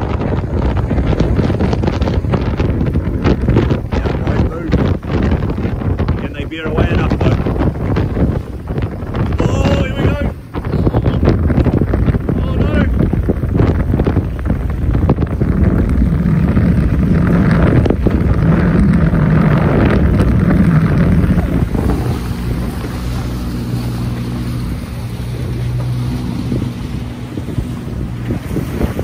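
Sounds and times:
motorboat engine: 0:00.0 - 0:29.0
waves splashing: 0:00.0 - 0:29.0
wind buffeting microphone: 0:00.0 - 0:29.0.

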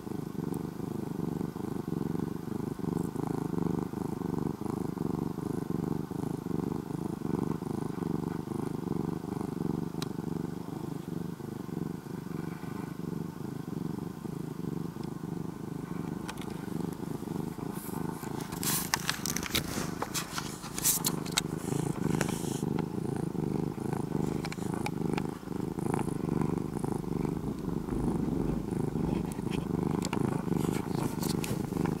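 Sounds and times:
cat purring: 0:00.0 - 0:32.0
rustling against fabric: 0:15.9 - 0:32.0.

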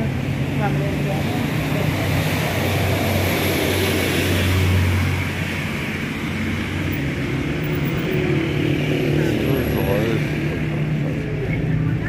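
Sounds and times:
tyres hissing on wet road: 0:00.1 - 0:10.9.

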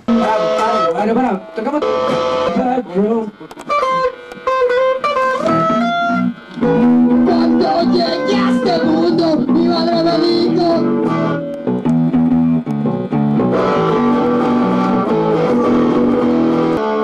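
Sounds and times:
electric guitar chords: 0:00.0 - 0:17.0
wavering melody line: 0:00.1 - 0:11.6.

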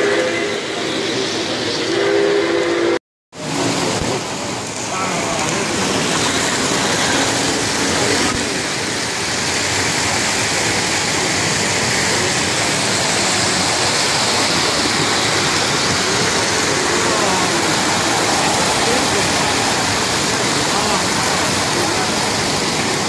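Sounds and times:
toy trains rolling on metal track: 0:04.7 - 0:23.0.

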